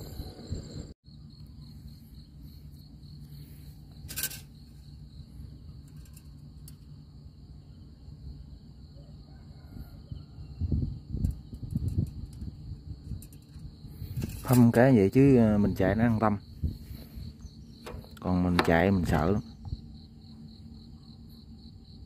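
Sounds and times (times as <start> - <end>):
low steady rumble: 0.0 - 9.0, 10.0 - 22.0
insects chirping: 0.0 - 22.0.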